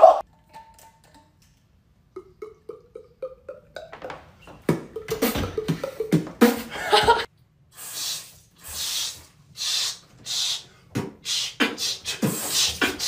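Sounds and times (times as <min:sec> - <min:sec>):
beatboxing mouth percussion: 0:02.2 - 0:06.7, 0:07.8 - 0:13.0
breathy hissing beats: 0:04.5 - 0:07.2, 0:07.8 - 0:13.0.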